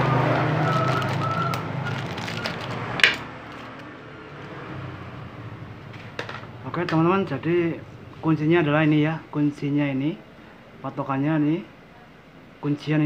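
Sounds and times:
handling sounds: 0.0 - 4.0
passing vehicle engine: 0.0 - 10.8.

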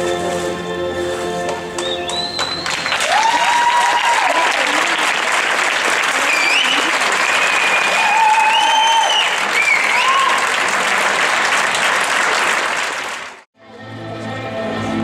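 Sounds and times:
audience applauding: 1.8 - 13.5
high drawn-out cheers: 2.4 - 12.9.

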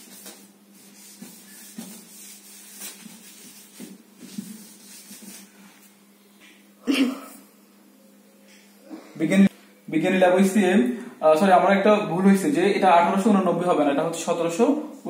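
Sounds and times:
marker pen on whiteboard: 0.0 - 5.9.

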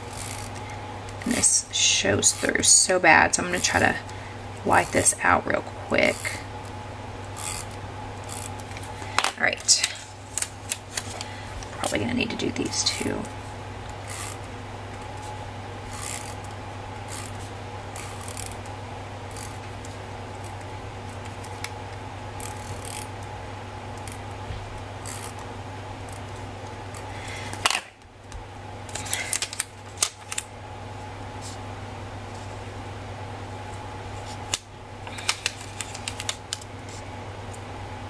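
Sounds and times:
correction tape scratching paper: 0.0 - 2.8, 3.4 - 4.0, 7.3 - 8.9, 13.9 - 14.5, 15.1 - 18.7, 19.3 - 21.7, 22.4 - 23.1, 25.0 - 25.4, 34.2 - 37.0
steady low hum: 0.0 - 38.0.

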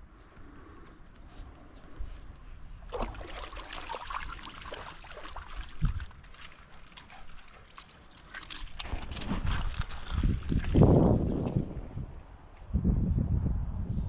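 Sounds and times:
splashing while wading: 2.9 - 11.0.

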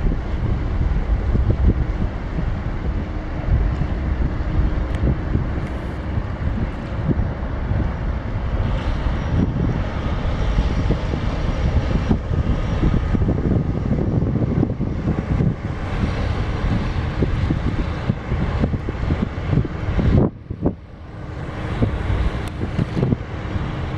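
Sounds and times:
ship engine running low: 0.0 - 23.9
wind buffeting microphone: 0.0 - 23.9.

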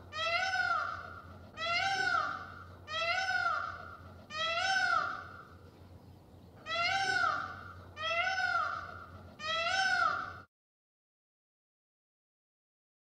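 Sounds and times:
peacock calling: 0.0 - 5.6, 6.6 - 10.5.

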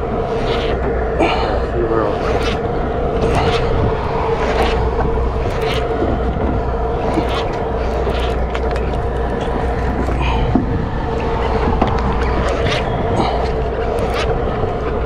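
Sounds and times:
boat engine droning: 0.0 - 15.0
water noise: 0.0 - 15.0
wind: 0.0 - 15.0
fishing reel cranking scratches: 0.2 - 0.8, 2.0 - 2.6, 3.2 - 6.0, 6.9 - 10.2, 12.0 - 14.7.

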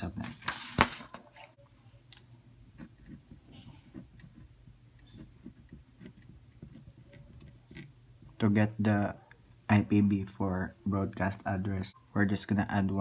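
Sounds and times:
pen writing on paper: 2.8 - 7.9.

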